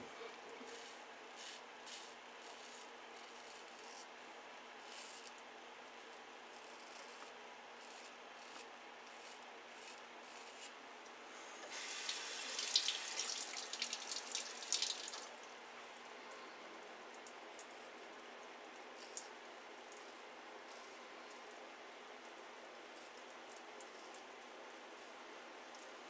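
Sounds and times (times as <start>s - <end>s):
razor blade scratching stubble: 6.5s - 10.7s.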